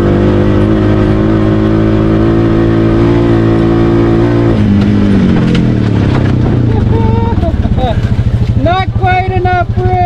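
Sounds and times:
engine revving at full throttle: 0.0s - 10.0s.

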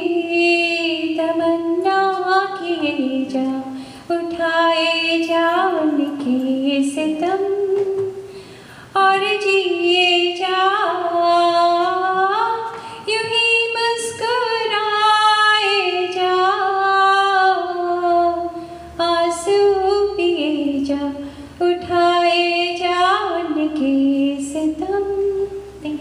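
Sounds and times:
woman singing unaccompanied: 0.0s - 8.3s, 8.9s - 26.0s.

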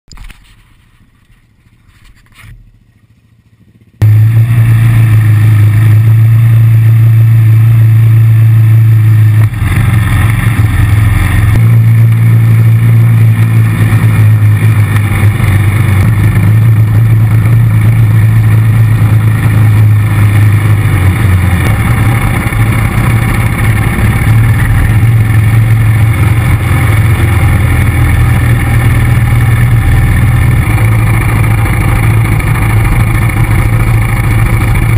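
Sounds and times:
atv engine running under throttle: 0.2s - 34.9s.

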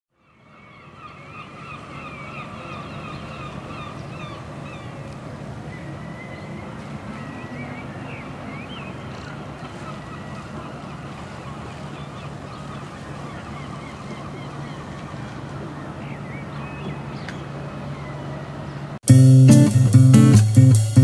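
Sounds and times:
birds calling: 0.3s - 21.0s.

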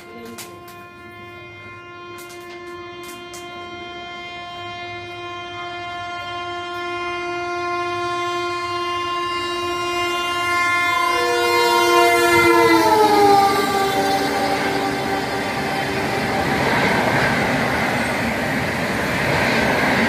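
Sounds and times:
locomotive horn: 0.0s - 20.0s
train rushing past: 10.1s - 20.0s.

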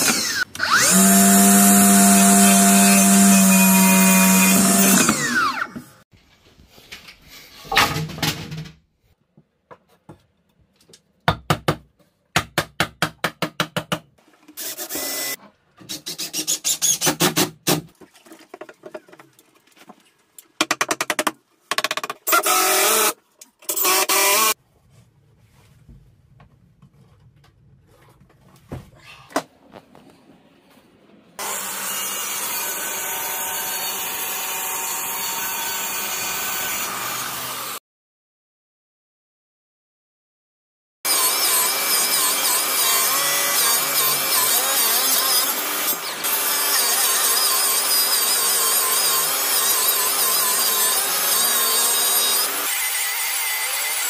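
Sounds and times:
cordless drill driving screws: 0.0s - 5.8s
plunge saw cutting a board: 0.0s - 6.0s, 14.6s - 17.5s, 22.3s - 24.6s, 31.4s - 37.8s, 41.1s - 54.0s.

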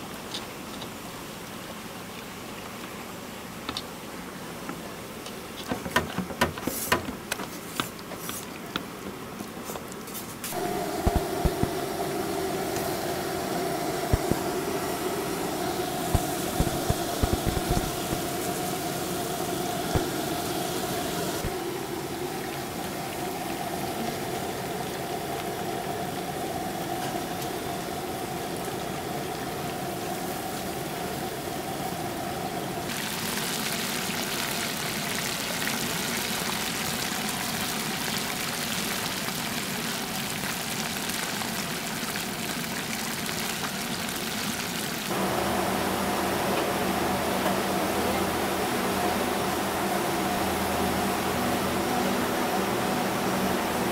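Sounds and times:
oil sizzling: 10.3s - 32.0s, 32.6s - 53.9s
low hum: 10.5s - 32.9s.

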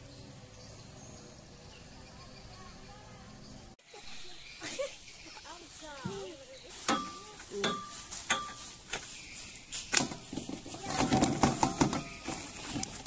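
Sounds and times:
sharp knocks with metallic ring: 6.8s - 8.7s.

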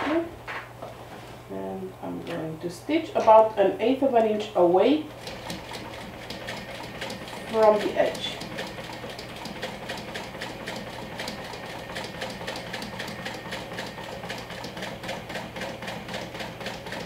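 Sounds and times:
sewing machine motor hum: 4.8s - 17.0s
sewing machine stitch clicks: 5.2s - 17.0s.

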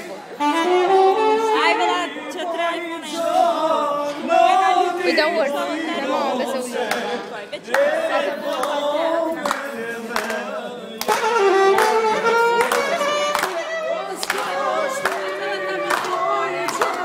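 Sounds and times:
festive music with singing: 0.0s - 17.0s
people clapping along: 6.8s - 17.0s.

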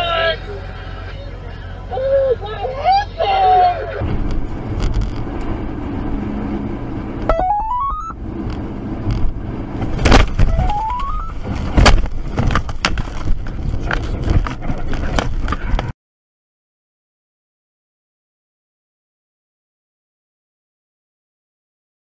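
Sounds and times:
car road noise: 0.0s - 15.9s
rising electronic tone: 7.3s - 8.2s, 10.5s - 11.4s
debris clattering on a car: 9.1s - 15.9s.

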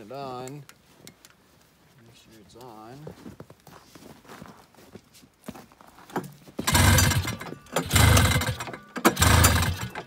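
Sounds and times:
engine pull-start attempts: 6.1s - 10.0s.

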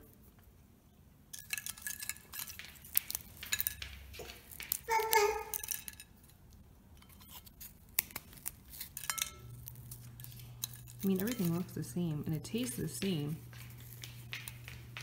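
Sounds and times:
crisp clicks of dry food on plate: 1.4s - 6.4s, 7.0s - 15.0s.

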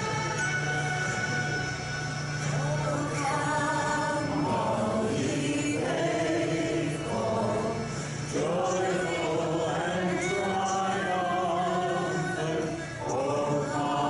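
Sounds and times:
congregation singing a hymn: 2.6s - 14.0s.

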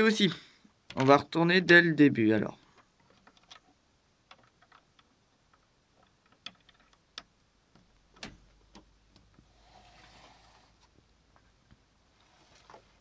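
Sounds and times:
plastic bricks clicking and tapping: 2.7s - 9.4s.

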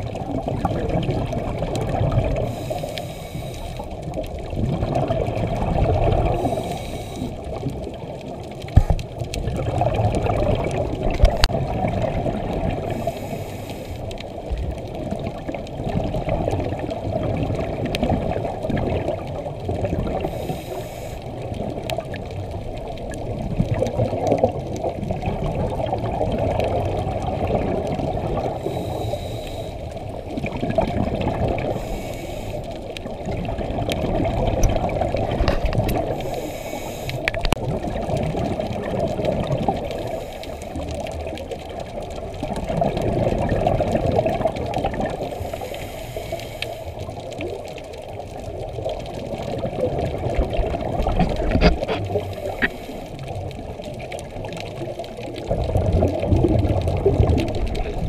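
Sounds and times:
underwater exhaled bubbles gurgling: 0.0s - 58.0s
regulator hiss: 2.4s - 3.9s, 6.4s - 7.4s, 12.9s - 14.1s, 20.2s - 21.2s, 28.6s - 29.9s, 31.7s - 32.7s, 36.2s - 37.3s, 45.2s - 47.0s.

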